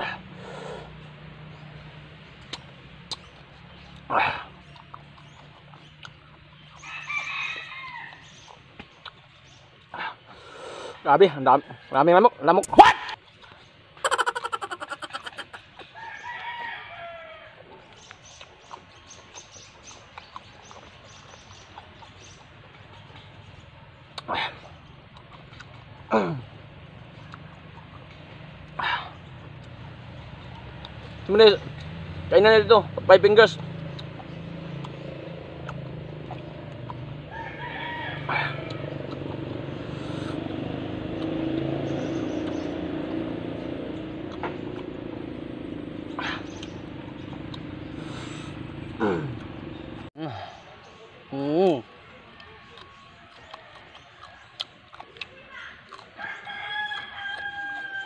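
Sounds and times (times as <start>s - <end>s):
chewing clicks and crunches: 2.4s - 6.9s, 7.5s - 10.0s, 13.1s - 16.5s, 17.8s - 32.2s, 33.5s - 37.7s, 38.5s - 45.3s, 46.2s - 48.5s, 52.3s - 58.0s
rooster crowing: 6.8s - 8.3s, 10.9s - 12.9s, 14.0s - 17.8s, 37.2s - 41.1s, 52.3s - 55.0s, 56.2s - 58.0s.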